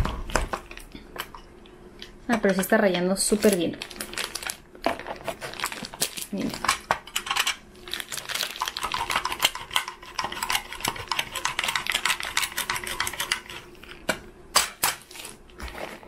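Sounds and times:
cheese grating rasps: 7.9s - 14.1s.

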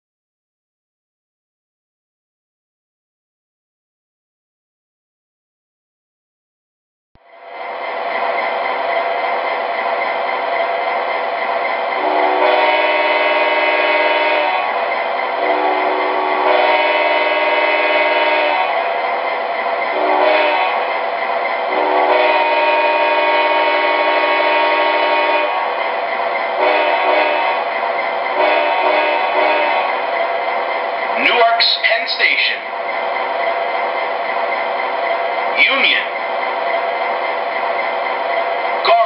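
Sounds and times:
air horn blasts: 12.0s - 14.8s, 15.4s - 18.8s, 20.0s - 20.8s, 21.7s - 25.7s, 26.6s - 27.6s, 28.4s - 30.0s.

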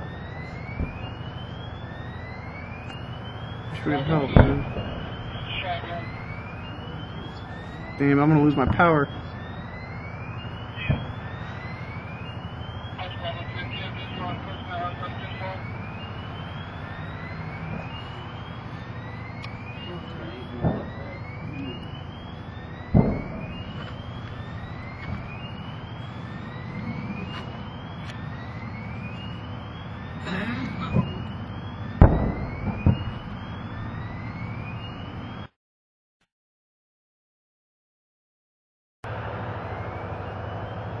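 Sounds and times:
whooping alarm siren: 0.0s - 35.6s, 39.0s - 41.0s
distant ammunition booms: 0.1s - 35.0s
low rumble: 0.6s - 29.1s.

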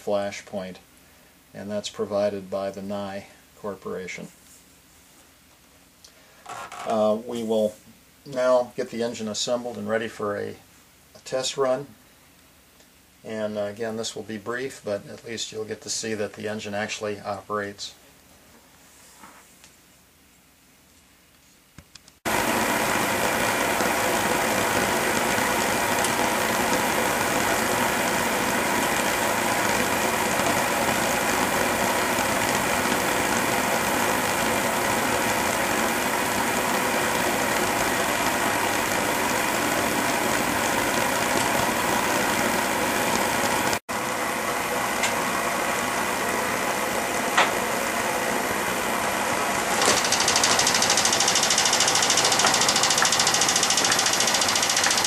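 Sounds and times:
gas burner rushing: 22.3s - 55.0s.

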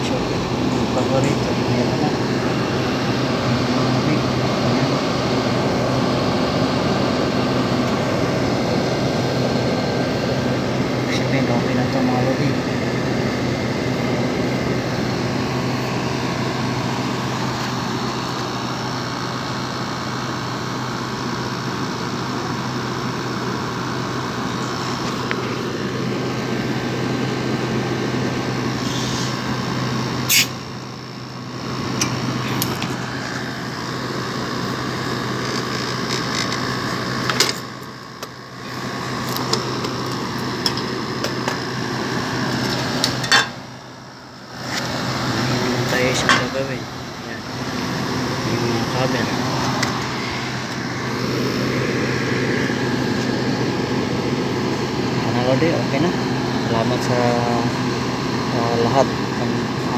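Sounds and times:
air conditioner running: 0.0s - 59.9s.

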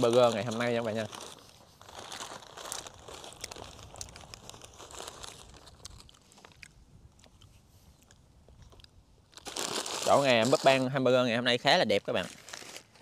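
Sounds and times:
wind rumbling on microphone: 1.9s - 9.2s.

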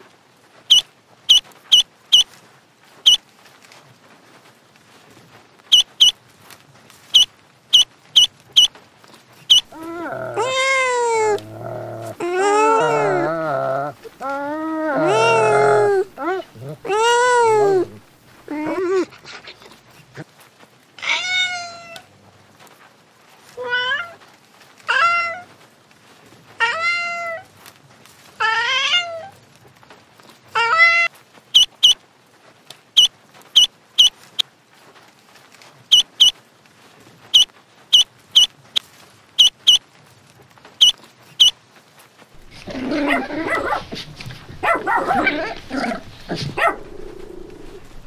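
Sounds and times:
ducklings peeping: 0.7s - 2.2s, 5.7s - 6.1s, 7.2s - 8.7s, 9.5s - 9.7s, 31.6s - 32.0s, 33.0s - 34.4s, 35.9s - 36.3s, 37.4s - 38.5s, 39.4s - 39.8s
kittens meowing: 9.5s - 18.8s
puppies growling: 9.6s - 19.1s, 42.4s - 48.0s.

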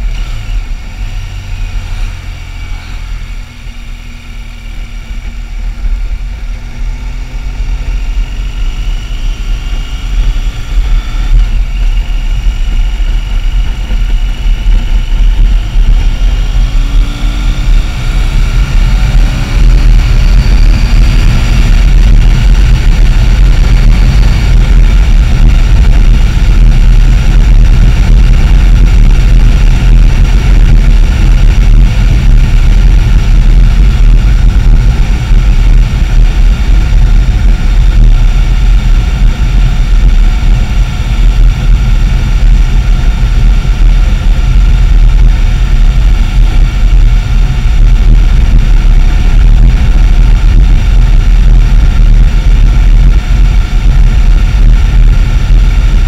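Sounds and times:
motorcycle engine accelerating: 0.0s - 56.0s
wind rumble on microphone: 0.0s - 56.0s.

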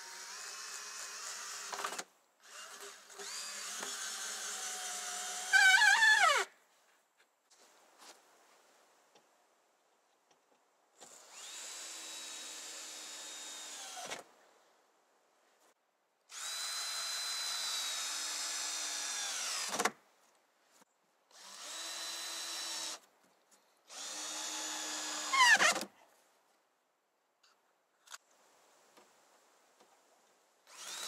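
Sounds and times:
cordless drill driving screws: 0.0s - 6.4s, 11.0s - 14.2s, 16.3s - 19.9s, 21.3s - 23.0s, 23.9s - 25.9s, 30.7s - 31.0s.

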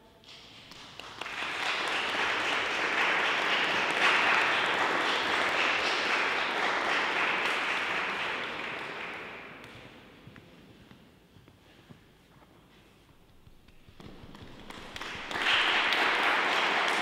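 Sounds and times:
audience applauding in a hall: 0.3s - 10.0s, 13.4s - 17.0s.

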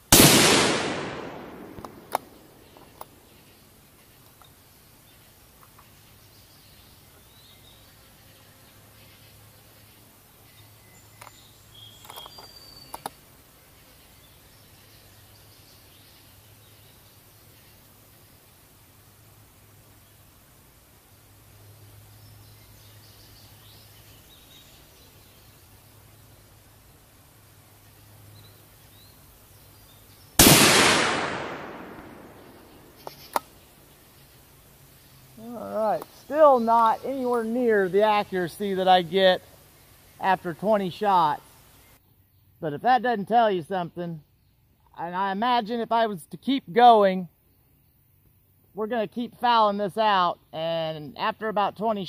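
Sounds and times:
rifle shot: 0.1s - 2.7s, 30.4s - 33.1s
bird chirps: 1.4s - 13.2s
steady low hum: 18.1s - 40.2s.

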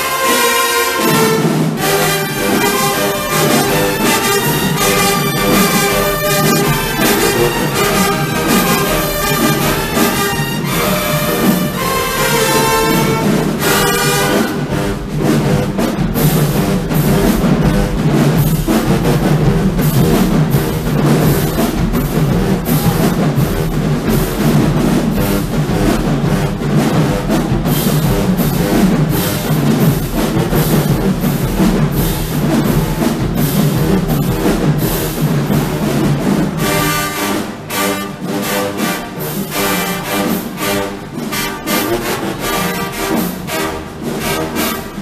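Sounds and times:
horns holding notes: 0.0s - 16.0s, 36.6s - 45.0s
drums beating: 0.0s - 45.0s
marching band playing: 0.0s - 45.0s.

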